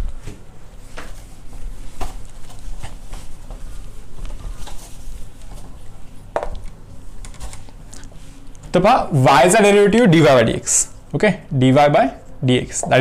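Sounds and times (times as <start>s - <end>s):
cloth rubbing on whiteboard: 0.8s - 6.0s.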